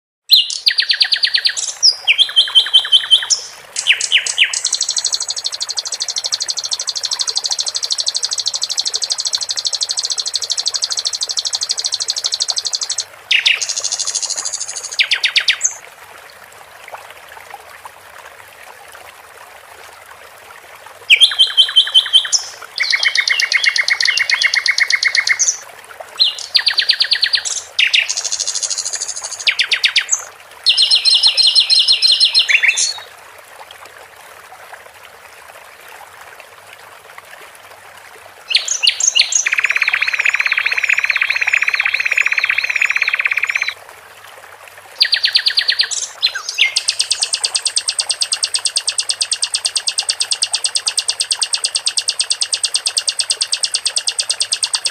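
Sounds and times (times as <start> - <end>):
nightingale singing: 0.3 - 15.8, 21.1 - 25.6, 26.2 - 33.0, 38.5 - 43.8, 45.0 - 54.9
trickling water: 0.3 - 54.9.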